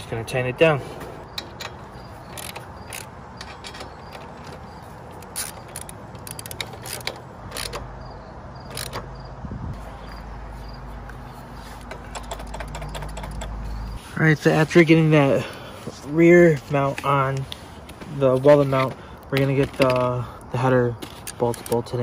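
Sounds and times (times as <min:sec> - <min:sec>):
socket ratchet clicking: 0:01.2 - 0:09.2, 0:11.8 - 0:13.7.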